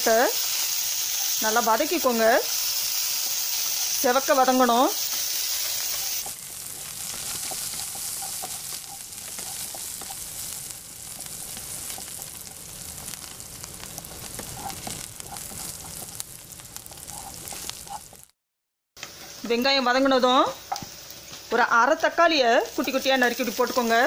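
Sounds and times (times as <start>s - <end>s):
onions sizzling in hot oil: 0.0s - 18.4s, 19.0s - 24.0s
spatula scraping and tapping pan: 5.1s - 18.3s.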